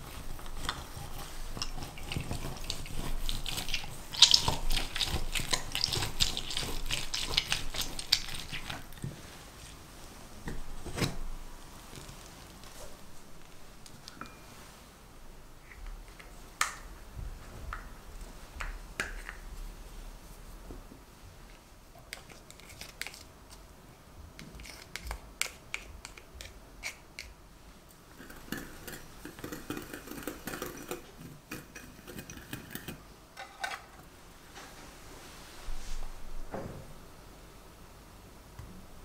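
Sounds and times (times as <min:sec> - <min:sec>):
spatula scraping grater: 0:00.0 - 0:08.9.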